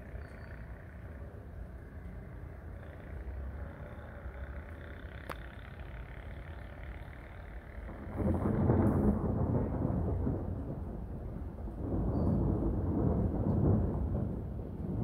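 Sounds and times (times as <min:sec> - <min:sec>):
distant thunder rumble: 0:07.8 - 0:15.0.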